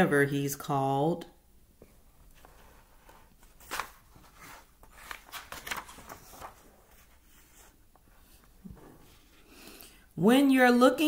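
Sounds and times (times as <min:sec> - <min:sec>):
paper rustling: 0:02.2 - 0:09.5
book page flapping: 0:02.3 - 0:07.8.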